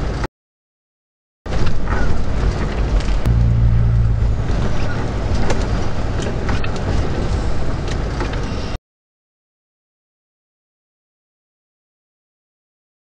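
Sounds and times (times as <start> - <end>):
road and tyre noise: 0.0 - 0.3, 1.5 - 8.8
low engine drone: 2.9 - 8.8.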